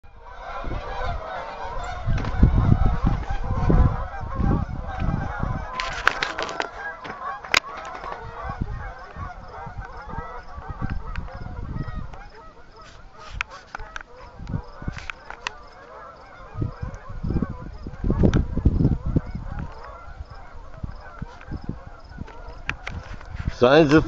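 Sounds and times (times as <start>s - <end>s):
geese honking: 0.0s - 24.0s
thumps on microphone: 2.1s - 3.3s.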